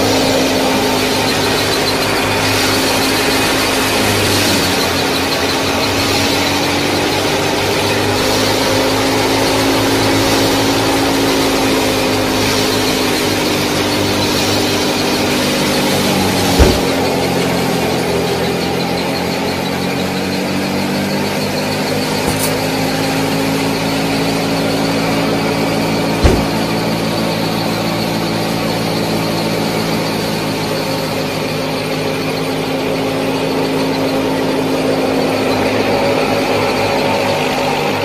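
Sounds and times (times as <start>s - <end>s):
sharp knock: 16.6s - 17.1s, 22.2s - 22.6s, 26.2s - 26.8s.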